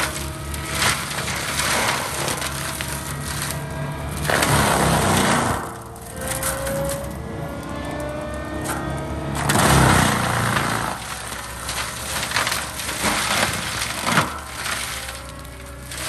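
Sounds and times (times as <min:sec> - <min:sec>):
mulcher engine under load: 0:00.0 - 0:16.0
rising machine whine: 0:01.9 - 0:11.7.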